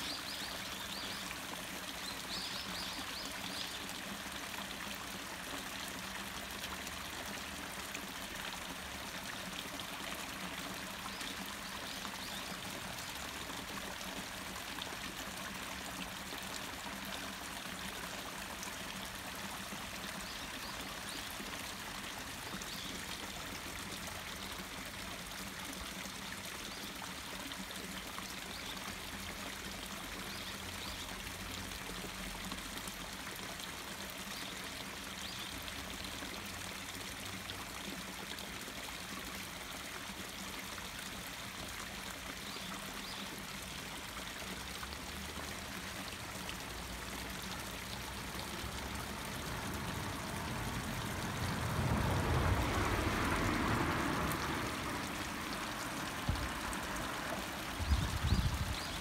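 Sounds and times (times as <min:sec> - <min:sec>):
water pouring over concrete steps: 0:30.8 - 0:59.0.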